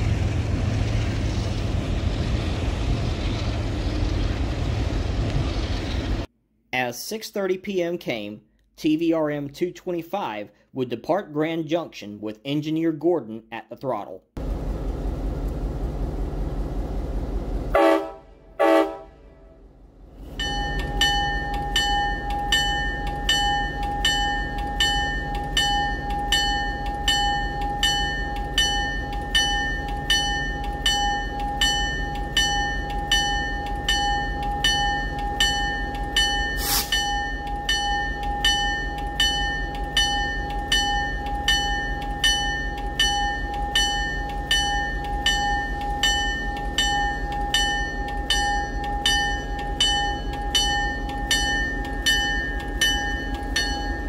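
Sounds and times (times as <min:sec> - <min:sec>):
diesel engine running: 0:00.0 - 0:06.3, 0:14.4 - 0:19.0
locomotive horn blasts: 0:17.7 - 0:19.6
locomotive bell ringing: 0:20.2 - 0:54.0.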